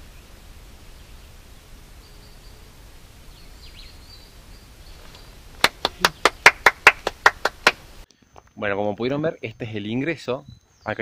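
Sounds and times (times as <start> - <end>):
faint bird chirps: 0.0 - 5.4, 8.1 - 11.0
hands clapping: 5.6 - 7.8.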